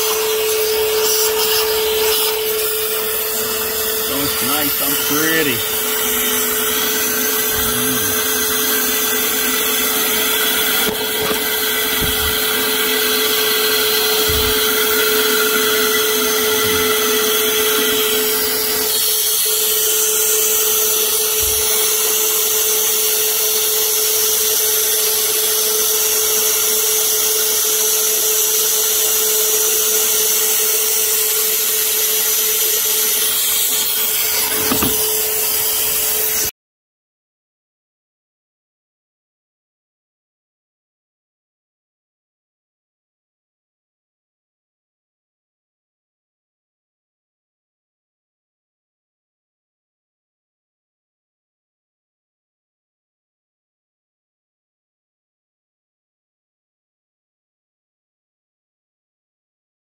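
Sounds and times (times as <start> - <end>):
electric motor whining: 0.0 - 36.5.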